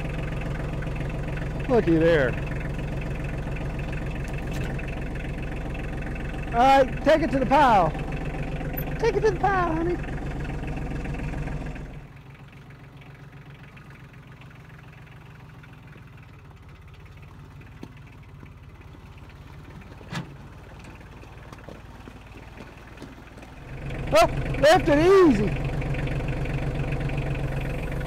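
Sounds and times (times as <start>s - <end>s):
tractor engine droning: 0.0s - 28.0s.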